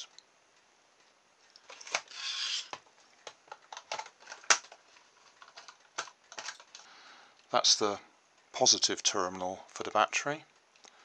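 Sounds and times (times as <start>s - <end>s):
plastic rustle: 1.5s - 6.8s.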